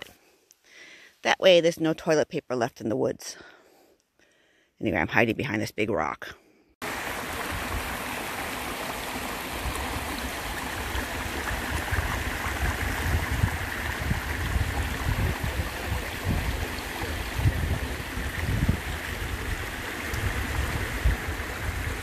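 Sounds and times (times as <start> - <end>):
brook babbling over stones: 6.8 - 22.0.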